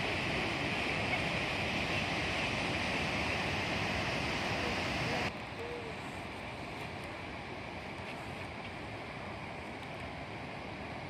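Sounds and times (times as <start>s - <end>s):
river rapids rushing: 0.0s - 6.6s
waterfall roaring: 0.0s - 11.0s.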